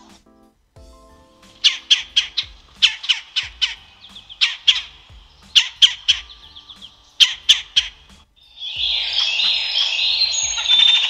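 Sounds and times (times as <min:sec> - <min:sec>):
woodpecker calling: 0:01.3 - 0:11.0.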